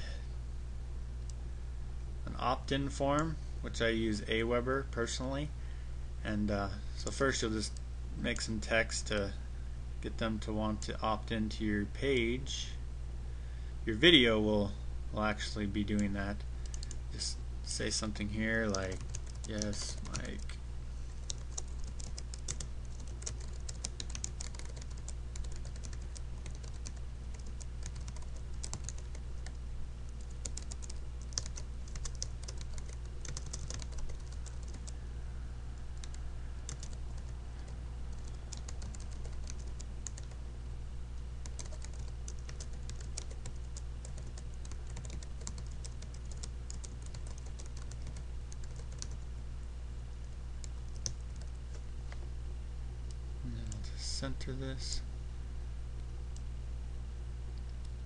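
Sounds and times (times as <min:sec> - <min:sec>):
low hum: 0:00.0 - 0:58.0
keyboard typing clicks: 0:21.2 - 0:29.6, 0:30.2 - 0:34.9, 0:36.0 - 0:37.3, 0:38.2 - 0:40.4, 0:41.4 - 0:49.2.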